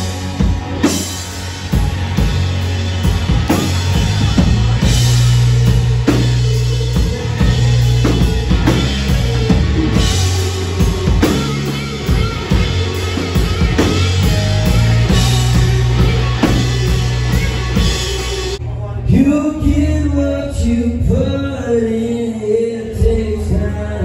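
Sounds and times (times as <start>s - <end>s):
drum kit beating: 0.0s - 18.6s
electric guitars: 0.0s - 18.6s
low bass notes: 0.0s - 24.0s.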